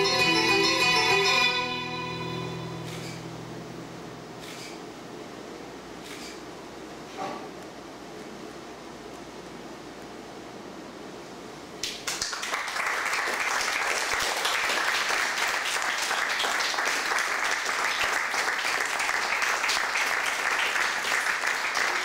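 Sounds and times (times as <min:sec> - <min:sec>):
audience applauding: 0:11.8 - 0:22.0.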